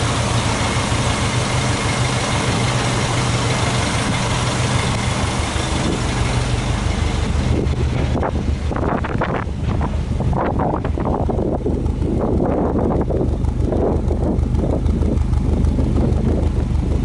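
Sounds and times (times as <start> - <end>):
car engine idling: 0.0 - 17.0
wind buffeting microphone: 5.4 - 17.0.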